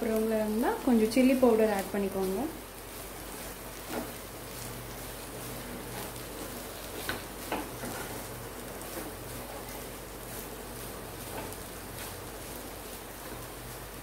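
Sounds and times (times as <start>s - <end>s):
frying hiss: 0.0s - 14.0s
spatula scraping pan: 3.4s - 12.2s.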